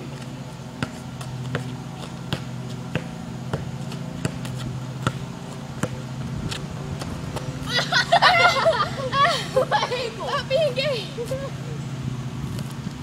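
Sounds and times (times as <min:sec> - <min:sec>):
steady low hum: 0:00.0 - 0:13.0
basketball dribbling: 0:00.2 - 0:07.5.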